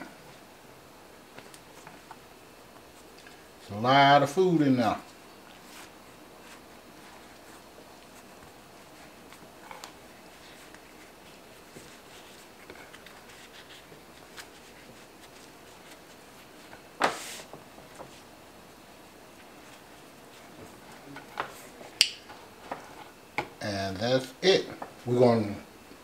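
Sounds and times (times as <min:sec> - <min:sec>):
tortilla rustling and tapping: 0:05.0 - 0:18.3, 0:19.3 - 0:23.6.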